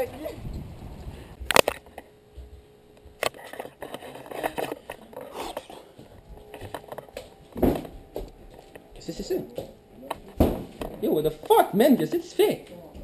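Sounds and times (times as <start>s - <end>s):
faint rustling and scraping: 2.3s - 9.0s.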